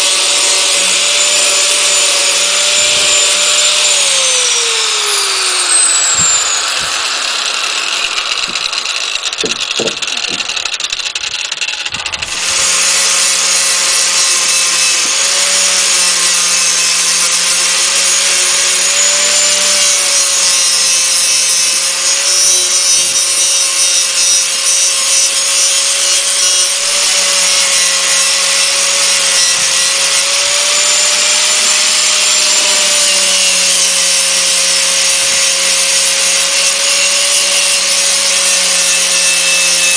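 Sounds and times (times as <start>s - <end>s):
angle grinder grinding wood: 0.0s - 39.9s
knocks: 9.4s - 10.6s.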